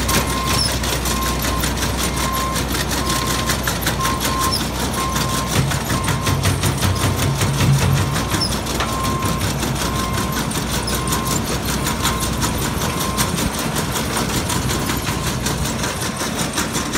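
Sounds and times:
diesel engine running: 0.0 - 16.9
backup alarm beeping: 0.2 - 13.5.

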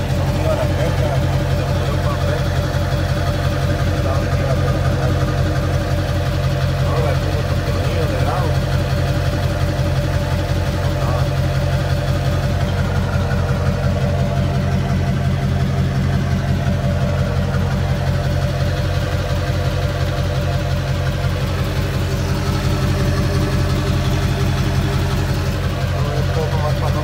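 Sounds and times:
diesel engine idling: 0.0 - 27.0.

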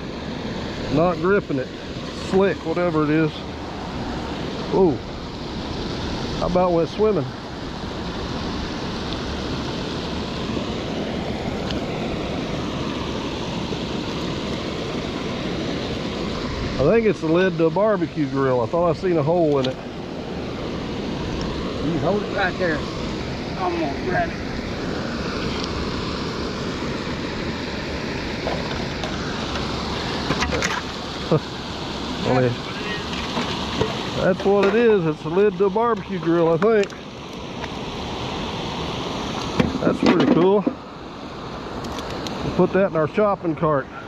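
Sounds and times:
water rushing over a dam: 0.0 - 44.0.

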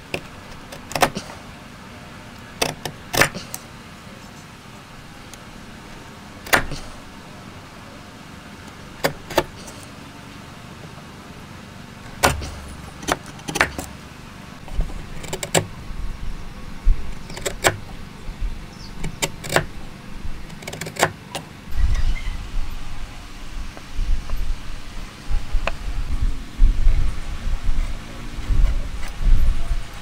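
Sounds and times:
chisel cracking into wood: 0.1 - 1.2, 2.6 - 3.6, 6.4 - 6.9, 9.0 - 9.8, 12.2 - 13.9, 19.0 - 19.7.

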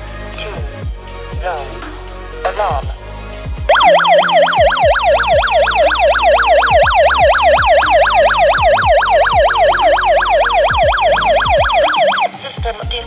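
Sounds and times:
alarm siren warbling: 3.7 - 12.3.

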